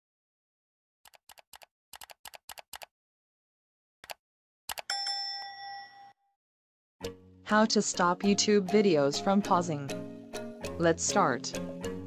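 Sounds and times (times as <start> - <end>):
keyboard typing: 1.1 - 2.9, 4.0 - 5.0.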